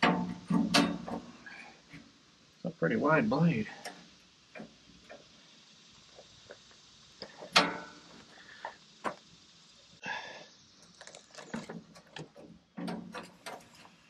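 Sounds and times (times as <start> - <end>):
metal knocks and rattles: 0.0 - 1.4, 11.4 - 14.0
sharp ringing metal clank: 7.6 - 8.1.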